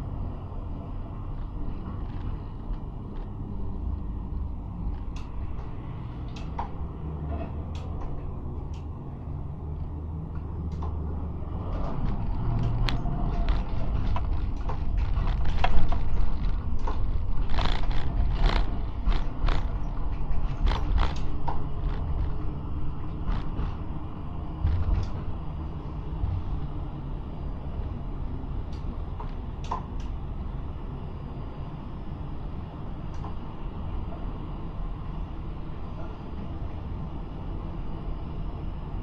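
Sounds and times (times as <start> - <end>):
tram rumbling on track: 0.0 - 39.0
wheels clicking and squeaking on rails: 10.8 - 23.9.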